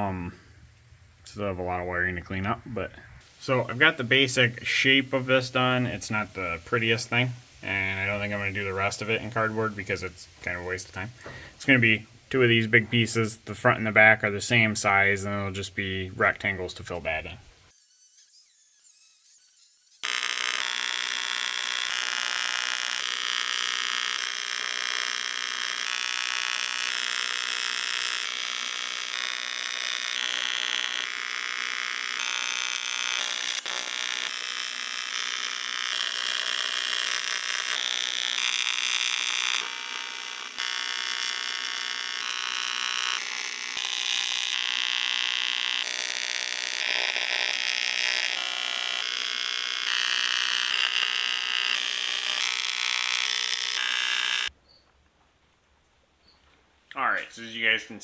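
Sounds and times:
welding arc buzzing: 0:03.2 - 0:10.8, 0:17.7 - 0:54.6.

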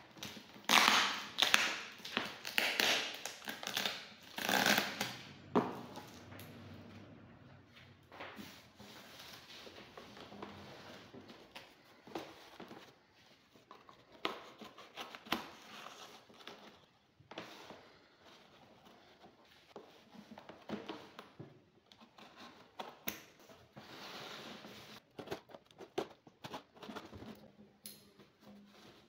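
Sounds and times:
tape and cardboard tearing: 0:00.2 - 0:05.3.

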